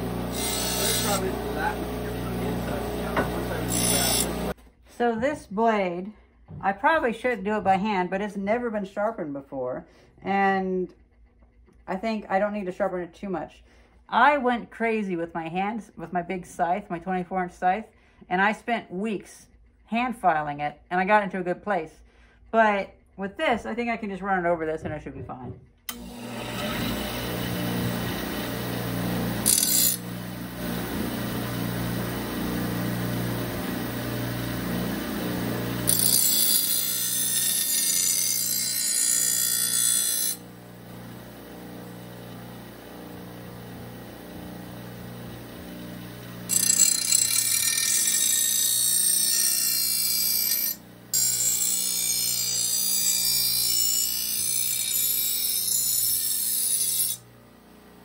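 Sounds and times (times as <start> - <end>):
bench grinder motor hum: 0.0 - 4.6, 25.9 - 58.0
blade scraping on grinding wheel: 0.0 - 4.6, 25.9 - 57.2.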